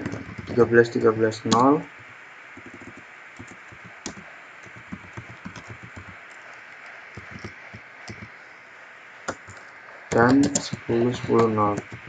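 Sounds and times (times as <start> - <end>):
faint steady hiss: 0.0 - 12.0.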